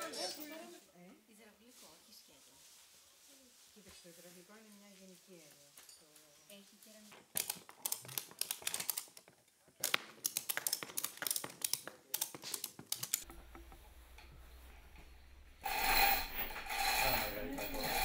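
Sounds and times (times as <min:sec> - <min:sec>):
ratchet strap buckles clicking: 0:07.3 - 0:13.3
chain hoist rasping rattle: 0:15.6 - 0:18.0.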